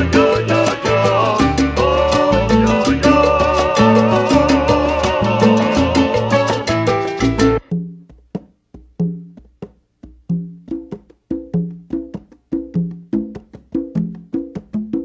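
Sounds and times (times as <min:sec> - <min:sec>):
hand drums playing: 0:00.0 - 0:15.0.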